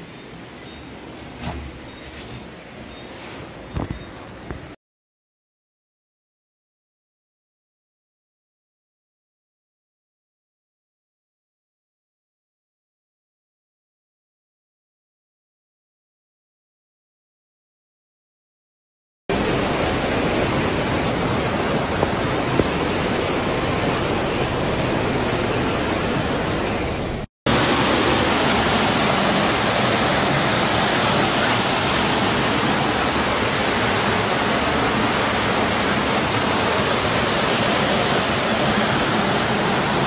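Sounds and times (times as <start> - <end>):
floodwater rushing: 19.3 - 40.0.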